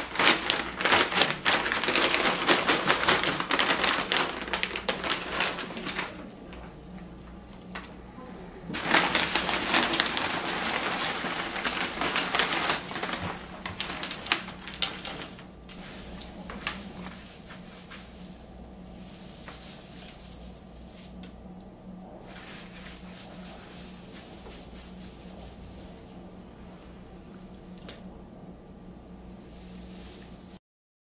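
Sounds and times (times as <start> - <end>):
dry stalks and plastic pouch rustling: 0.0 - 6.6, 8.8 - 21.2
low steady hum: 0.0 - 30.6.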